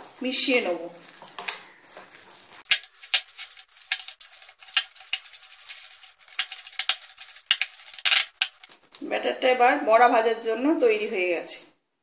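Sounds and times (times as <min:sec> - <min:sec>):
whisk clicking and scraping glass bowl: 0:02.6 - 0:08.8.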